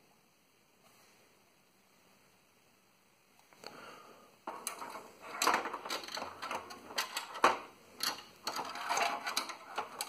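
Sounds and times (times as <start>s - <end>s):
clicks knocks and scrapes of computer parts: 4.5s - 10.0s.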